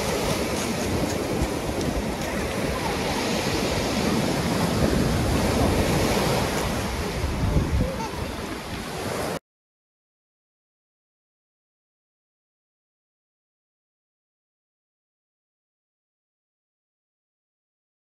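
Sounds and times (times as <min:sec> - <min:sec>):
waves washing up pebble beach: 0:00.0 - 0:09.4.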